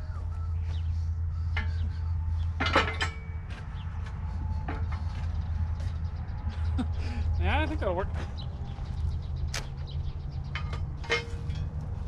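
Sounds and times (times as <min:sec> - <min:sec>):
skid steer engine idling: 0:00.0 - 0:12.0
metal clank on wood: 0:02.6 - 0:03.4, 0:10.5 - 0:11.8.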